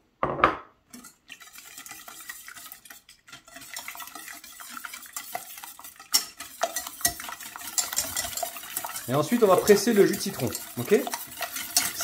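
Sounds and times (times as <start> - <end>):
knock: 0.2 - 0.7
whisk clinking against pan: 0.9 - 12.0.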